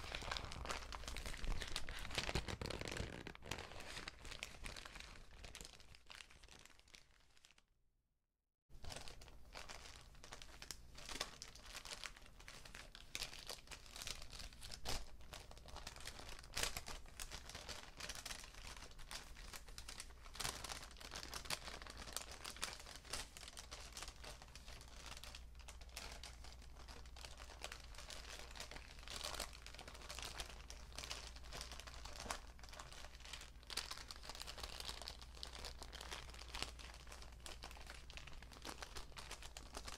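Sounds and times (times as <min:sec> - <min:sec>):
paper bag crinkling: 0:00.0 - 0:07.2.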